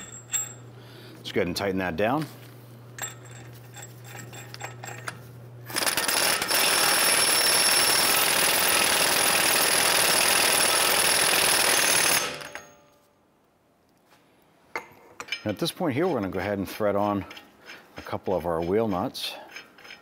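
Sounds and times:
impact wrench hammering: 0:05.7 - 0:12.7.

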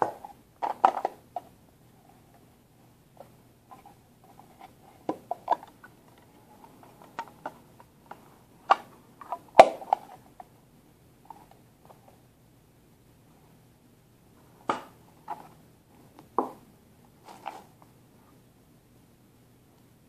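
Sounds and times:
plastic case clicking open and shut: 0:00.0 - 0:01.3.

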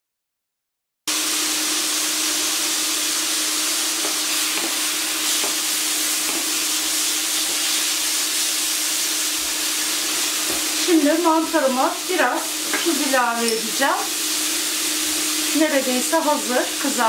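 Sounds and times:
mushrooms sizzling in oil: 0:01.1 - 0:17.0
spatula knocking against pan: 0:06.2 - 0:06.6.

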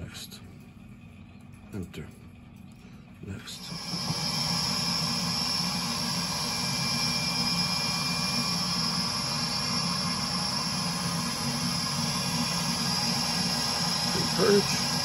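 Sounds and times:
boiler blower rushing air: 0:03.6 - 0:15.0.

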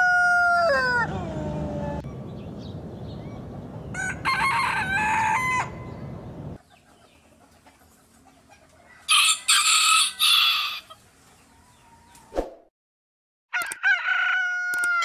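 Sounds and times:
roosters crowing: 0:00.0 - 0:02.0, 0:03.8 - 0:06.6, 0:08.8 - 0:12.1, 0:13.5 - 0:15.0.

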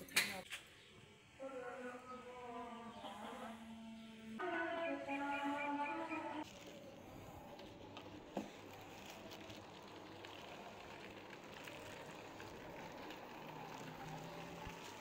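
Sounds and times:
rain falling: 0:08.5 - 0:15.0.

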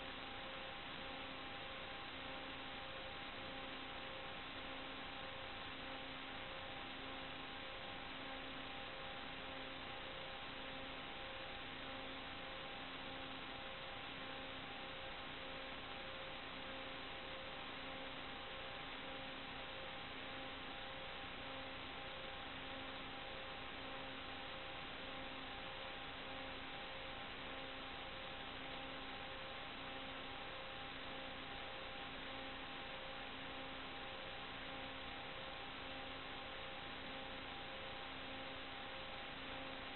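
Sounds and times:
faint hum tones: 0:00.0 - 0:39.9.

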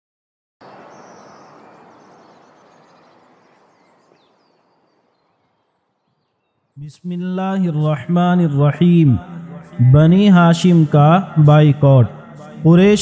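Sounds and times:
faint high chirps: 0:00.6 - 0:06.8.

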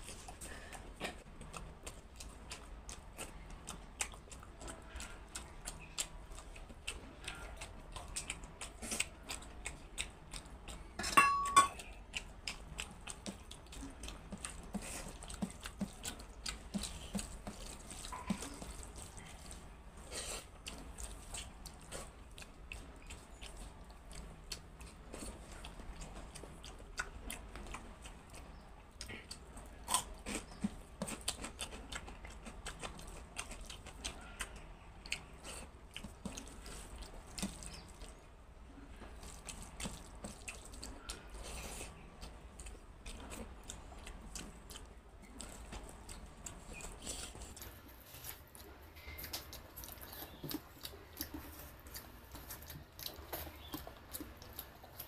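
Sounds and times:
metal clink with ringing tone: 0:11.0 - 0:11.8.

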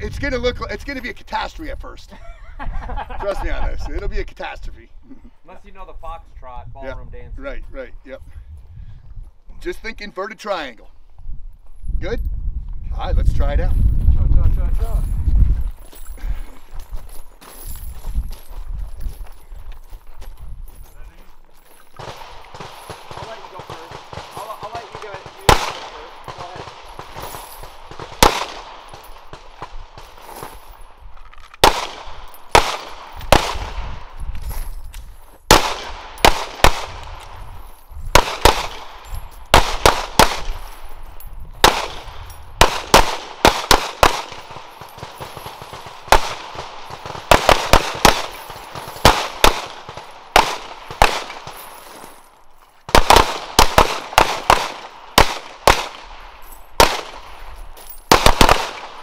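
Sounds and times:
handgun shots: 0:22.0 - 0:30.5, 0:38.1 - 0:40.6, 0:41.6 - 0:51.7, 0:58.1 - 0:59.0.

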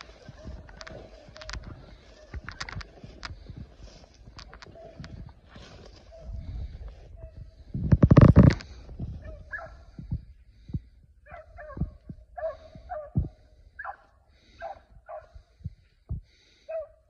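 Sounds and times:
hounds baying and yelping: 0:00.0 - 0:07.7, 0:09.1 - 0:10.1, 0:11.2 - 0:15.6, 0:16.6 - 0:17.0.

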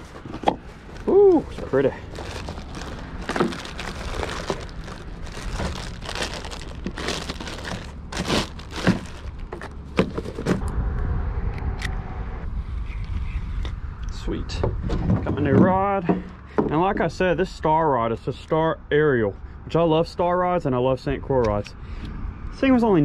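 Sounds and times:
cardboard and plastic wrapping crinkling: 0:00.0 - 0:10.6
steady low rumble: 0:00.0 - 0:23.0.

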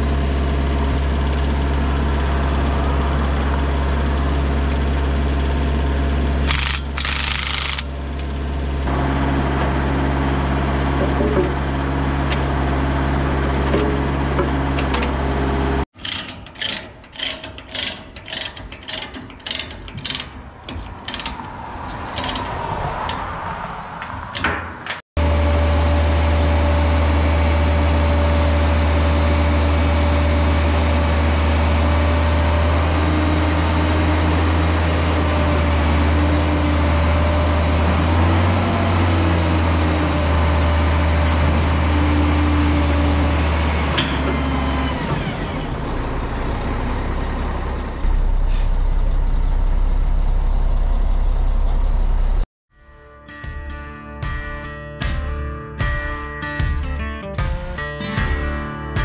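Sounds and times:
excavator engine idling: 0:00.0 - 0:23.4, 0:25.2 - 0:52.4
hydraulic whine: 0:00.0 - 0:24.6, 0:25.2 - 0:52.4
truck engine running: 0:00.0 - 0:52.5
ratchet strap clicking: 0:06.5 - 0:07.9, 0:16.0 - 0:21.5, 0:22.1 - 0:23.2.

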